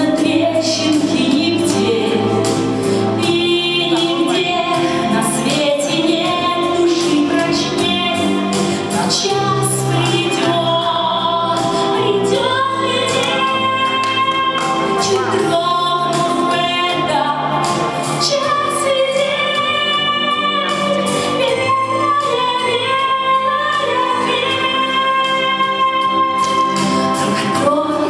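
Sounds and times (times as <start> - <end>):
instrumental backing music: 0.0 - 28.0
woman singing into microphone: 0.0 - 28.0.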